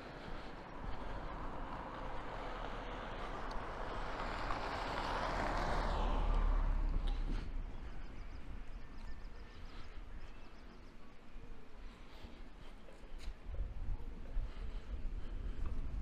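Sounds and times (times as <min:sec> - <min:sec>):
vehicle passing by: 0:00.0 - 0:10.0.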